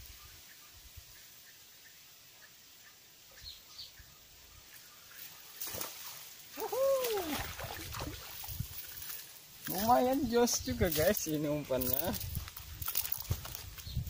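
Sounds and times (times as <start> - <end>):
fish splashing in water: 5.5 - 9.2.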